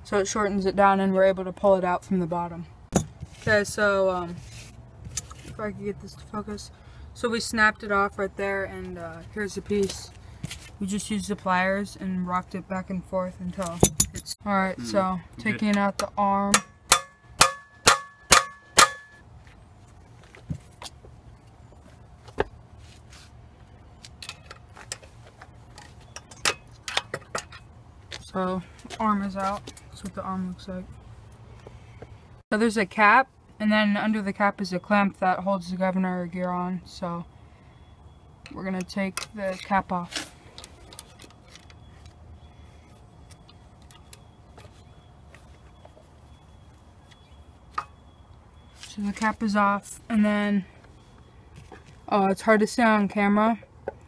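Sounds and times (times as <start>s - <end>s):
metal tools clicking and tapping: 13.6s - 14.4s, 25.7s - 27.7s.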